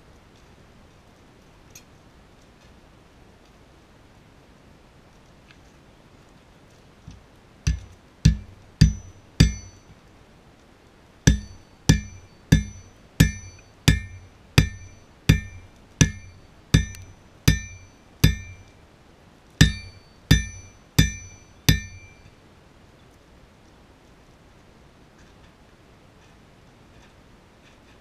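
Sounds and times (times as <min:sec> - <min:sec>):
hammer striking steel on anvil: 0:07.7 - 0:09.9, 0:11.3 - 0:18.7, 0:19.6 - 0:22.3.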